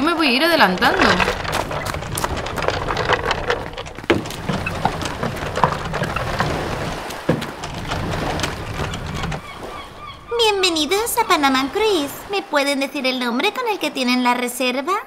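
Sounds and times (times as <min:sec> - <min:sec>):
clicks and knocks: 0:00.0 - 0:09.6
steady rumble: 0:00.0 - 0:12.3
suitcases rolling over paving: 0:00.0 - 0:12.4.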